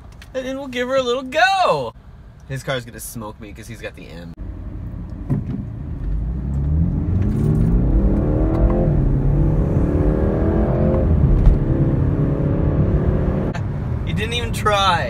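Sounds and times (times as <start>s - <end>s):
car engine accelerating: 4.4s - 14.0s.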